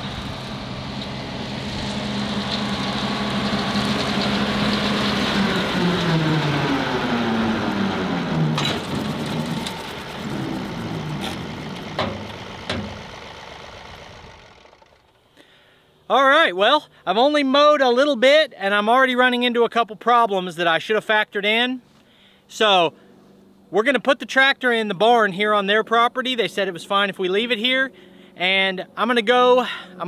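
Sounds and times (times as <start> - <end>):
tractor diesel engine under load: 0.0 - 15.3
sharp knocks: 11.2 - 13.2.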